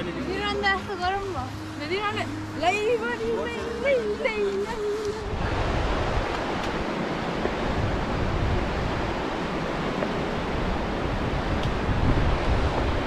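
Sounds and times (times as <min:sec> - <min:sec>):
fast mountain river rushing: 0:00.0 - 0:13.0.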